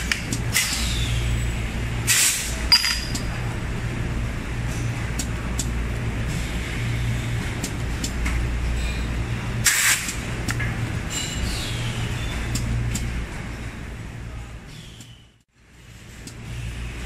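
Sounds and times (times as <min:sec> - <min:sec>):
air release hiss: 0:09.6 - 0:10.1.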